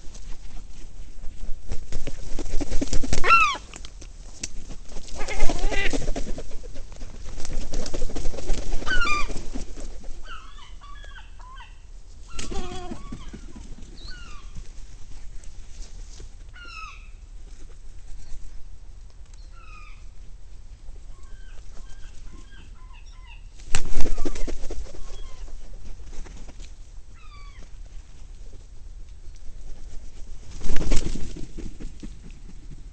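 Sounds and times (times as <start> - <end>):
gulls flapping wings: 1.9 - 3.7, 5.0 - 10.4, 12.3 - 14.6, 23.7 - 26.6, 30.5 - 32.9
gull calls: 3.2 - 3.7.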